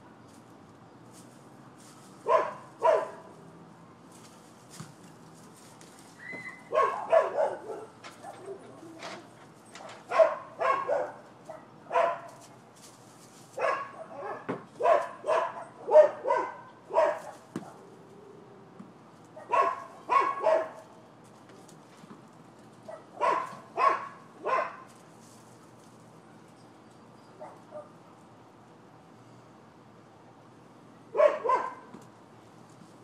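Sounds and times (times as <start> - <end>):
dogs barking: 2.2 - 3.4, 6.4 - 9.0, 9.8 - 12.4, 13.6 - 17.9, 19.4 - 20.9, 22.9 - 24.9, 27.4 - 27.9, 31.1 - 31.9.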